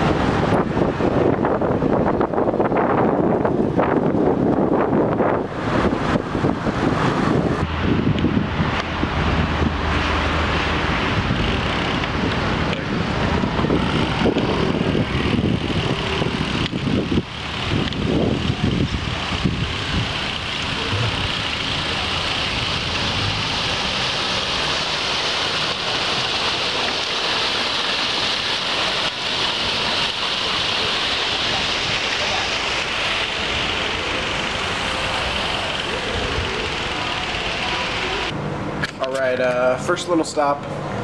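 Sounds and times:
wind buffeting microphone: 0.0 - 24.6
street traffic: 0.0 - 41.0.

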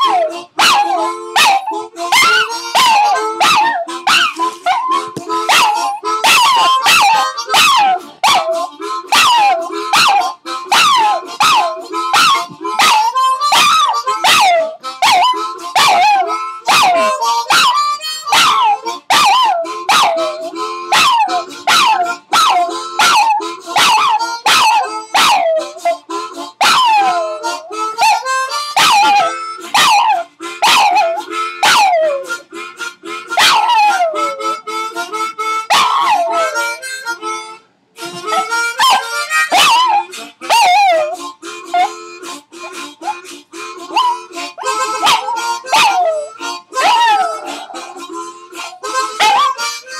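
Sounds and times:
small dog howling: 0.0 - 26.0, 26.6 - 27.4, 28.8 - 32.3, 33.4 - 34.4, 35.7 - 36.8, 38.3 - 41.9, 43.9 - 48.1, 49.2 - 49.6
held musical tones: 0.0 - 49.9.

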